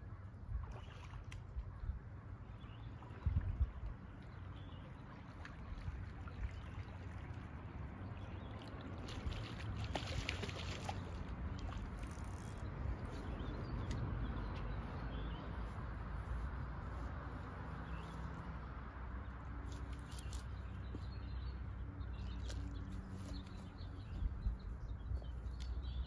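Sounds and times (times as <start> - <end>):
small clicks and splashes: 0.6 - 1.7, 3.0 - 13.2
wind rumbling on microphone: 3.0 - 4.2, 23.1 - 26.0
water lapping on rocks: 3.0 - 12.8.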